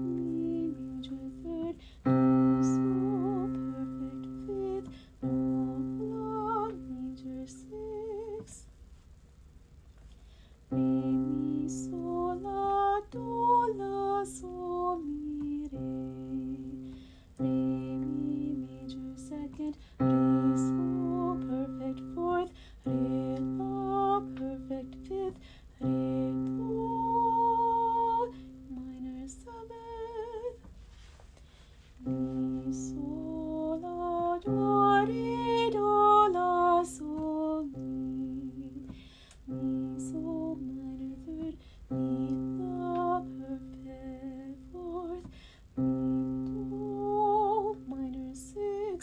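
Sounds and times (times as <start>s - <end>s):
woman singing scale: 0.0s - 8.7s, 10.7s - 30.7s, 32.0s - 49.0s.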